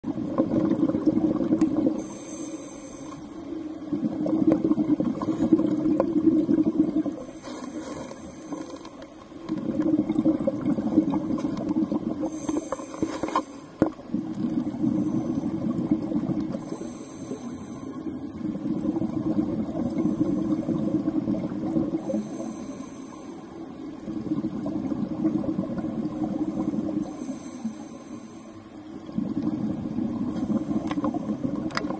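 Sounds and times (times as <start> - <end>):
bubbling exhaust underwater: 0.0 - 31.9
regulator inhale hiss: 1.9 - 3.5, 7.2 - 8.9, 12.2 - 13.8, 16.6 - 18.2, 22.0 - 23.7, 27.0 - 28.8.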